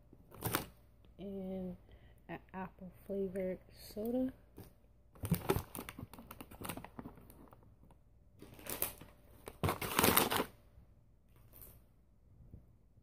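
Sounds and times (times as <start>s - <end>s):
plastic bags crinkling: 5.2s - 7.6s, 8.4s - 10.6s.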